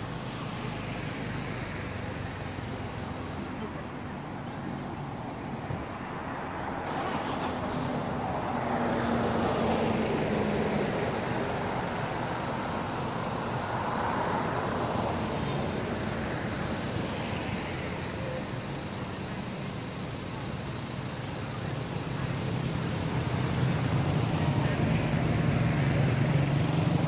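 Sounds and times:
road traffic hiss: 0.0 - 27.0
faint engine hum: 15.2 - 27.0.

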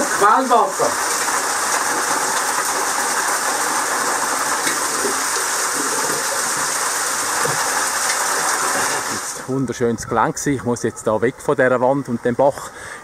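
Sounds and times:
waterfall splashing on rock: 0.0 - 9.5.

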